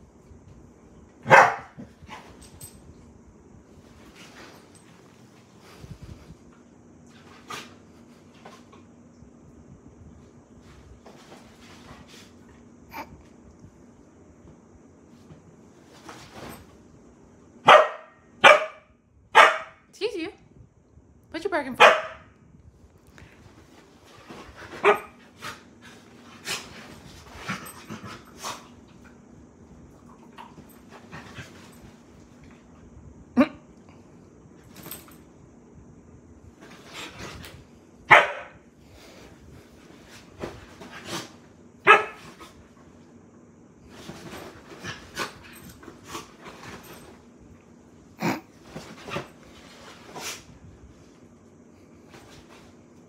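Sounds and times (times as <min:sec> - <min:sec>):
puppy barking: 0:01.2 - 0:01.8, 0:17.6 - 0:18.8, 0:19.4 - 0:19.8, 0:21.8 - 0:22.3, 0:38.1 - 0:38.6, 0:41.8 - 0:42.2.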